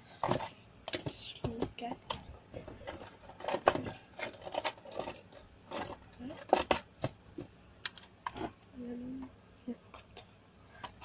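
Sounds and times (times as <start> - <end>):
objects handled near microphone: 0.2 - 8.6
woman's voice: 1.0 - 2.1, 8.8 - 10.2.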